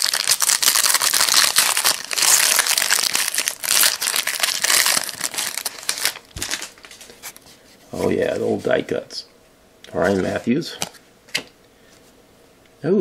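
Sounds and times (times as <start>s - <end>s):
foil wrapper crinkling and tearing: 0.0s - 7.0s.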